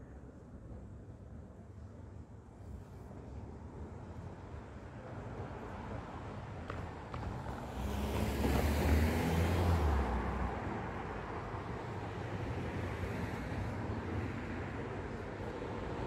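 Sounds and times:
street traffic noise: 0.0 - 16.0
car passing close: 7.1 - 15.4.

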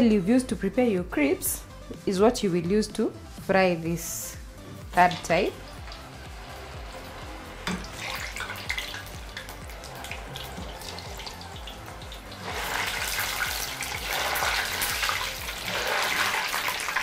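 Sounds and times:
food deep-frying in hot oil: 4.9 - 17.0.

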